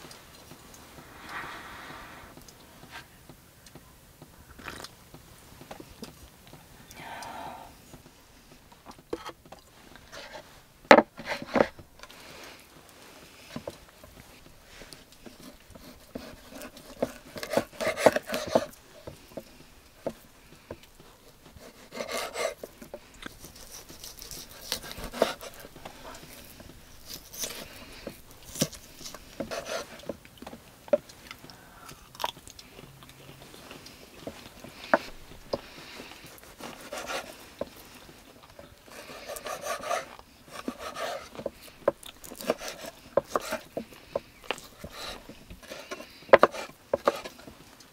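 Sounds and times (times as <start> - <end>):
close-up chewing: 11.5 - 47.9
knife rasping cuts: 15.3 - 18.8, 21.5 - 30.1, 35.0 - 37.4, 38.9 - 41.5, 42.3 - 43.8, 44.5 - 47.4.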